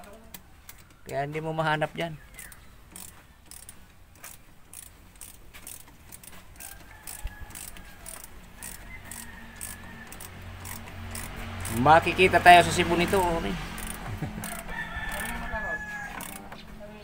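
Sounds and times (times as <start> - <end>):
ratchet wrench clicking: 2.4 - 15.4, 16.1 - 16.5.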